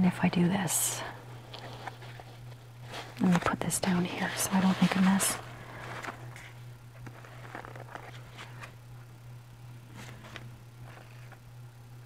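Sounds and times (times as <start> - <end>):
steady low hum: 0.0 - 12.0
paper rustling: 1.4 - 8.8, 9.9 - 11.4.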